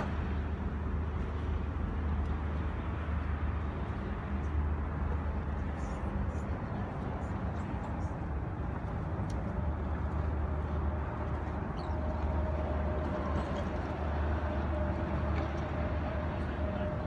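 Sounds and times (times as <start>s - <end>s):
low noisy rumble: 0.0s - 17.0s.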